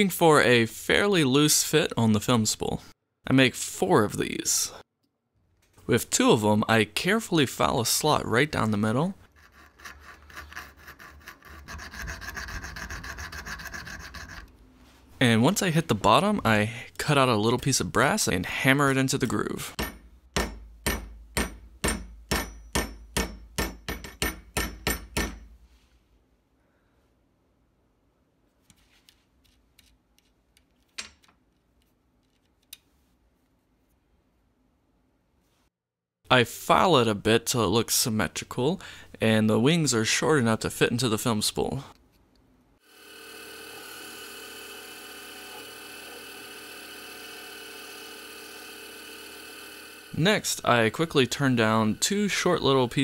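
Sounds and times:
hammer tapping metal: 19.8 - 25.5
lathe machine whine: 42.9 - 50.2.

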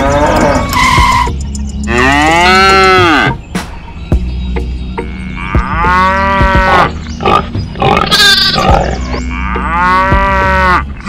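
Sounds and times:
cow mooing: 5.1 - 10.9.

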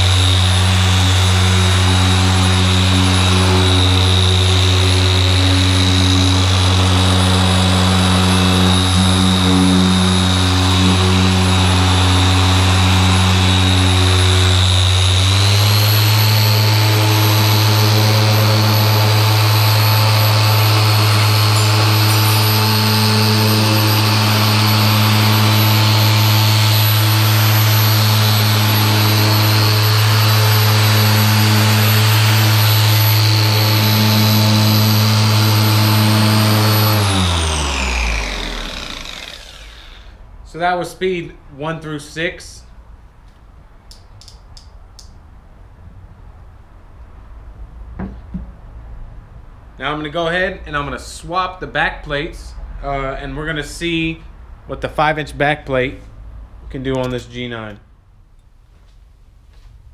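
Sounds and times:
polisher motor hum and whine: 0.0 - 40.2.

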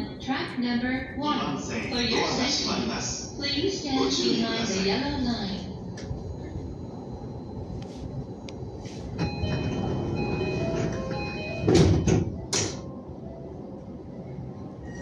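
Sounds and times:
train wheels rumbling on rail: 7.6 - 15.0.

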